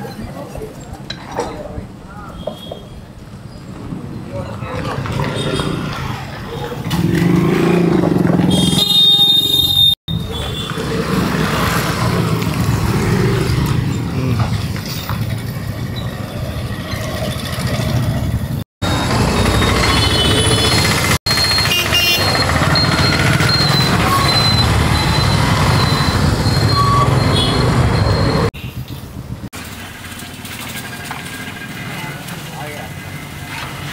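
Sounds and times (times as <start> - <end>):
vehicle engines running: 10.1 - 33.9.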